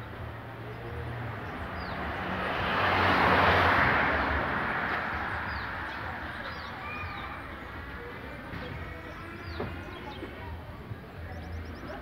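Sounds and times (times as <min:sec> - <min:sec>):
vehicle passing by: 0:00.3 - 0:08.0.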